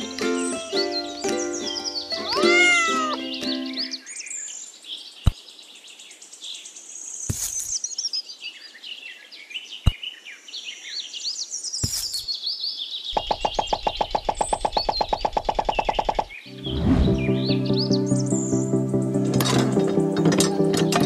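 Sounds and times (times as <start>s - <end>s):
birds chirping: 0.0s - 21.0s
stones knocking on sand: 7.3s - 7.8s, 11.8s - 12.3s.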